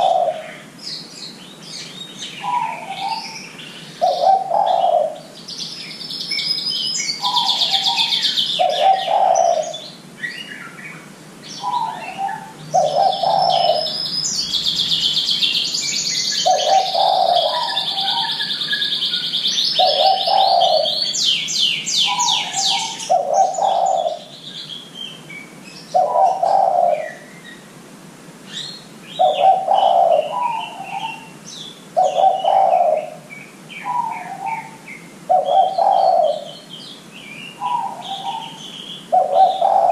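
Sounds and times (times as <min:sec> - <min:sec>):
dove cooing: 0:00.0 - 0:00.8, 0:02.3 - 0:05.4, 0:07.2 - 0:10.0, 0:11.6 - 0:15.6, 0:16.4 - 0:21.2, 0:22.0 - 0:24.4, 0:25.9 - 0:27.2, 0:29.2 - 0:31.4, 0:32.0 - 0:36.7, 0:37.6 - 0:39.9
songbirds chirping and trilling: 0:00.0 - 0:39.9.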